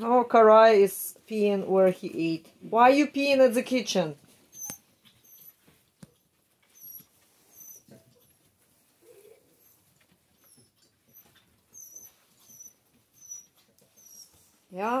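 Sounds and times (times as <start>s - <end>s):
puppies whining: 4.4s - 14.7s.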